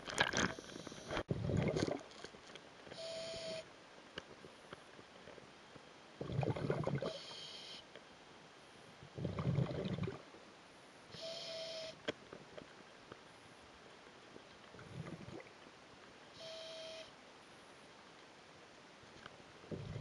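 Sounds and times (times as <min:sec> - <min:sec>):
bubbly diver exhalations: 0:01.3 - 0:02.1, 0:06.2 - 0:07.1, 0:09.2 - 0:10.2, 0:19.7 - 0:20.0
thin whistle: 0:02.9 - 0:03.7, 0:11.1 - 0:12.0, 0:16.4 - 0:17.2.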